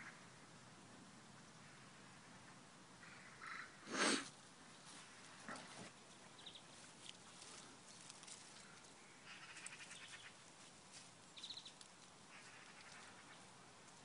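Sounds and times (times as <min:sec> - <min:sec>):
background hiss: 0:00.0 - 0:14.0.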